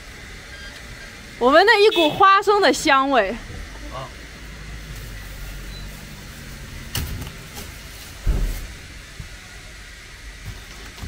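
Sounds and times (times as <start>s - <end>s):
heavy thump: 8.2s - 8.7s.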